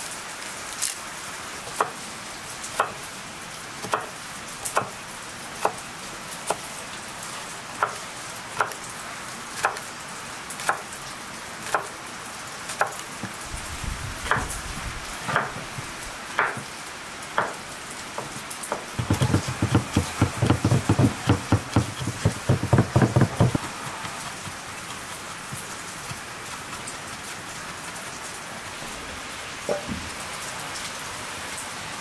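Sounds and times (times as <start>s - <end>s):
knife chopping on wooden board: 15.3s - 15.6s, 16.4s - 16.7s, 17.4s - 17.6s, 18.2s - 26.9s.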